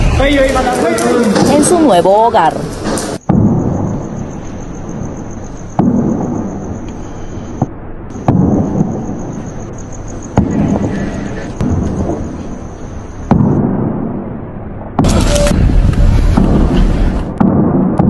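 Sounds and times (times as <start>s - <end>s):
deep booming impacts: 3.2s - 6.8s, 7.6s - 9.6s, 10.2s - 18.0s.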